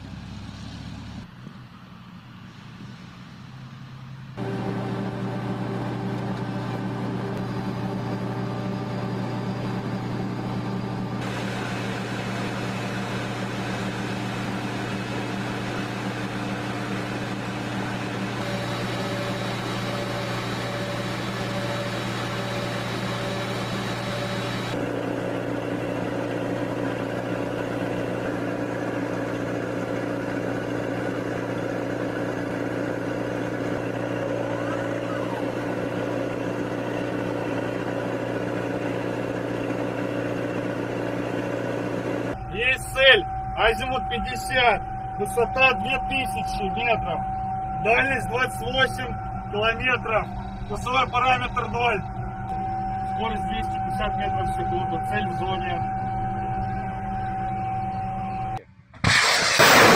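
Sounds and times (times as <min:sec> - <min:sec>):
vehicle mechanical hum: 0:00.0 - 0:59.9
hiss: 0:59.0 - 0:59.9.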